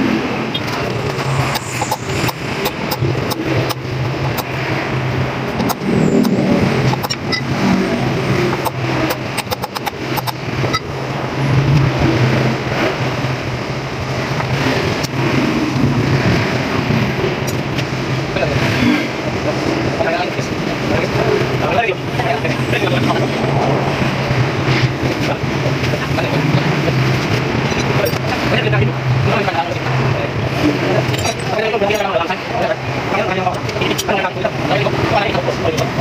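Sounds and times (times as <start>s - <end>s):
vehicle engine running: 0.0s - 36.0s
hand tools clicking on metal: 8.5s - 10.8s.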